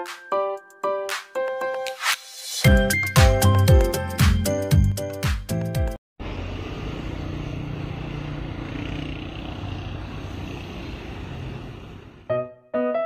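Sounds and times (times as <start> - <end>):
road traffic rumble: 6.2 - 12.3.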